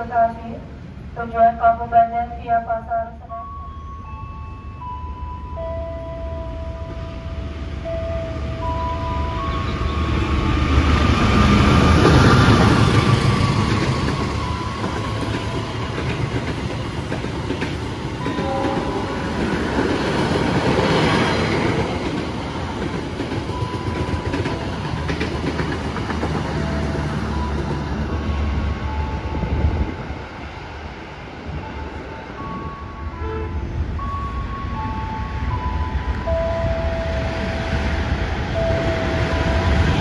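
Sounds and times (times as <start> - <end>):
train wheels clattering: 10.8 - 27.8.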